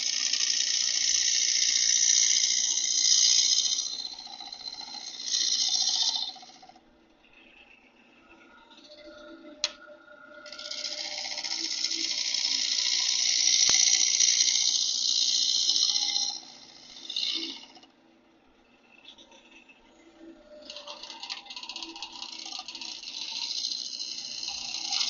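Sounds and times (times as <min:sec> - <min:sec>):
gouge hissing cut into wood: 0:00.0 - 0:06.5, 0:11.6 - 0:17.8
wood lathe humming: 0:00.0 - 0:06.8, 0:10.4 - 0:17.9, 0:20.6 - 0:25.0.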